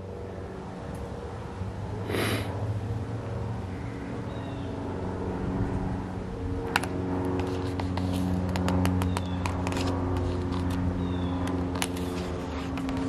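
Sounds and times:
vehicle engine humming: 0:00.0 - 0:13.0
light clicks and rustles: 0:06.7 - 0:13.0.

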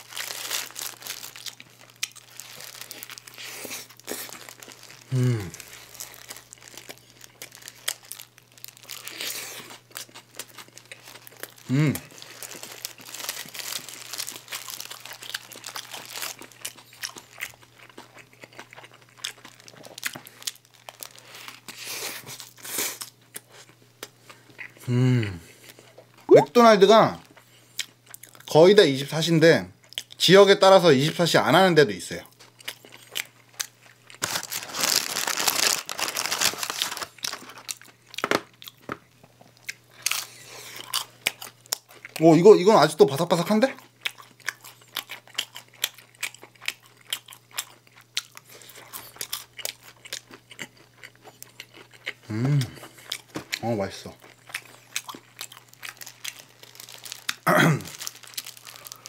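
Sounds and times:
paper wrapper crinkling: 0:00.0 - 0:11.6, 0:12.2 - 0:16.6, 0:19.5 - 0:21.6, 0:34.1 - 0:38.4, 0:55.0 - 0:59.0
person chewing with mouth clicks: 0:25.6 - 0:26.6, 0:43.8 - 0:59.0.

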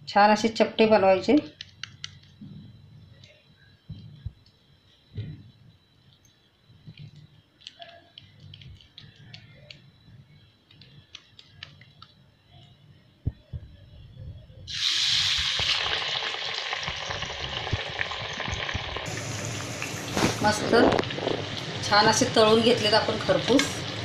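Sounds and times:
deep-frying sizzle in hot oil: 0:14.7 - 0:24.0.

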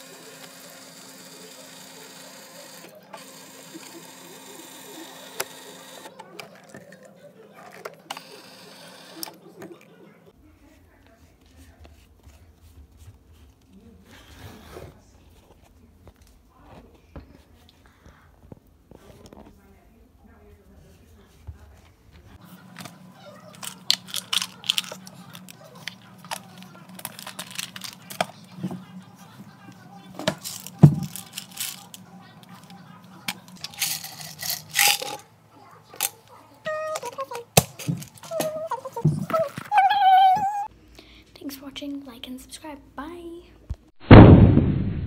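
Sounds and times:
pill bottle clicks and rattles: 0:23.6 - 0:26.4, 0:33.6 - 0:35.2.

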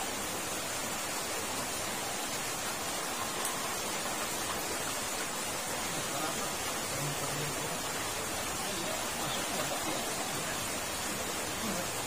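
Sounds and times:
water rushing through culvert: 0:00.0 - 0:12.0.

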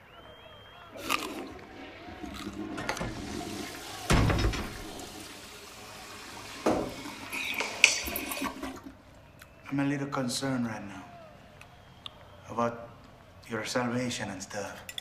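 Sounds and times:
toilet flushing: 0:00.9 - 0:09.0.

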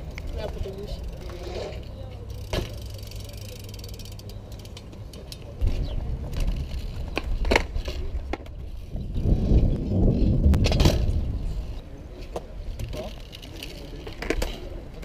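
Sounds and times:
bicycle tyres rolling on concrete: 0:00.0 - 0:15.0.

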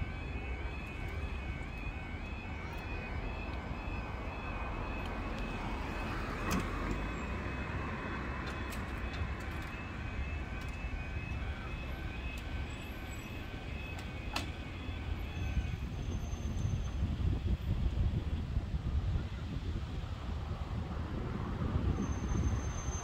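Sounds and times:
level crossing alarm pulsing: 0:00.0 - 0:16.8
road traffic rumble: 0:00.0 - 0:23.0.

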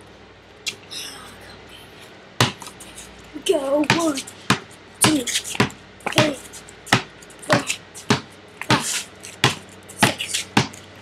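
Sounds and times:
basketball dribbling on hard ground: 0:02.4 - 0:02.8, 0:03.6 - 0:11.0.

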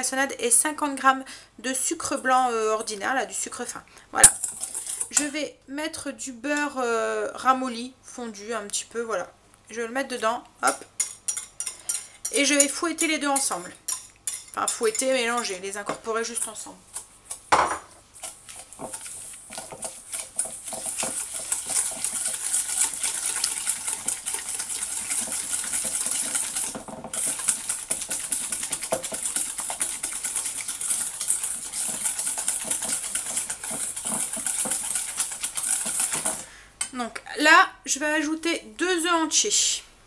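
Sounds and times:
whisk scraping metal bowl: 0:04.2 - 0:05.4, 0:11.0 - 0:17.5, 0:18.1 - 0:36.5.

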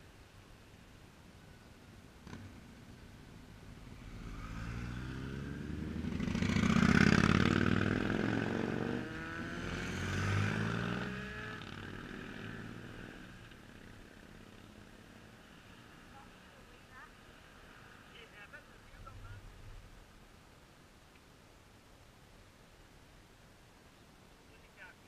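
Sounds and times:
motorcycles riding past: 0:02.2 - 0:19.4.

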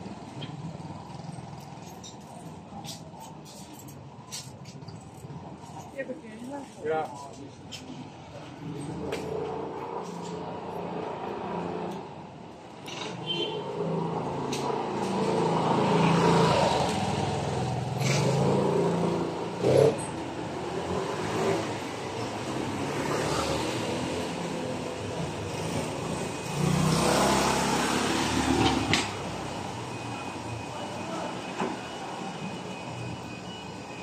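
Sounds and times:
motor scooters riding past: 0:14.8 - 0:30.4.

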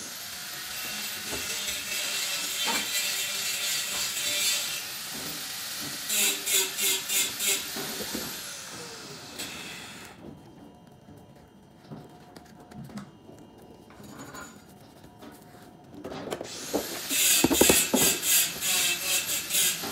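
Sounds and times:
power tool motor hissing: 0:16.5 - 0:19.9.

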